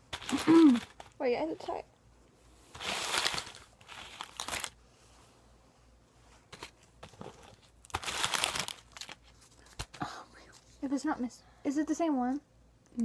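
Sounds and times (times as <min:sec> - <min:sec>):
wrapper crinkling and tearing: 0:00.1 - 0:01.2, 0:02.7 - 0:04.8, 0:06.6 - 0:10.0.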